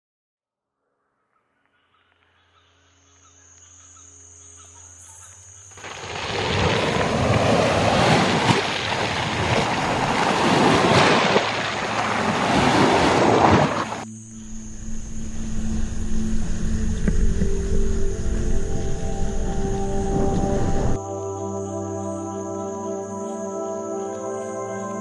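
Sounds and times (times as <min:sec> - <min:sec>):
waves washing over shingle: 0:05.8 - 0:14.0
faint steady low tones: 0:14.1 - 0:24.7.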